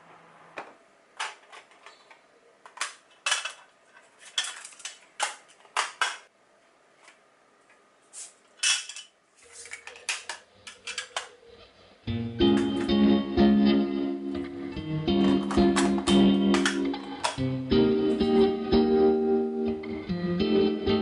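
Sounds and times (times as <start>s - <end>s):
plastic cassette player clicks: 15.2s - 17.4s.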